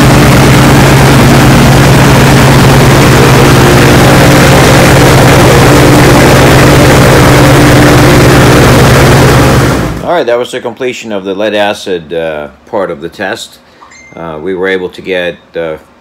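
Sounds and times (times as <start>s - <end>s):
aircraft engine and propeller running: 0.0s - 10.0s.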